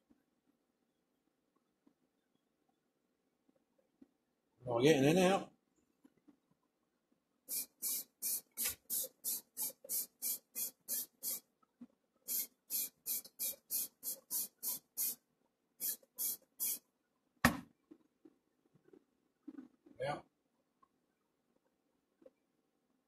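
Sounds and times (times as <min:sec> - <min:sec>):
spray paint hissing bursts: 0:07.5 - 0:11.5, 0:12.3 - 0:15.2, 0:15.8 - 0:16.8.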